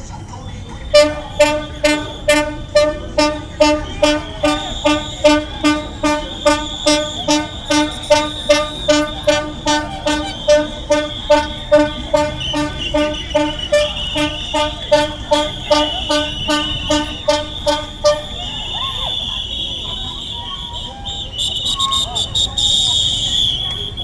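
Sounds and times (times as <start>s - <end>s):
horn tooting rhythmically: 0.6s - 24.0s.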